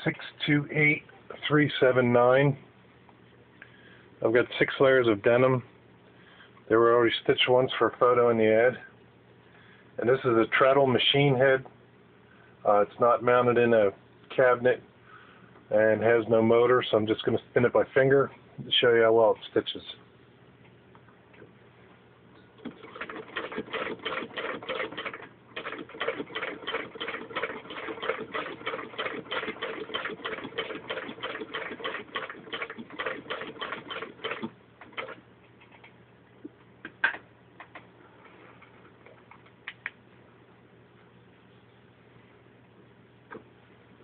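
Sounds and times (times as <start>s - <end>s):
sewing machine stitching clicks: 22.6s - 35.2s.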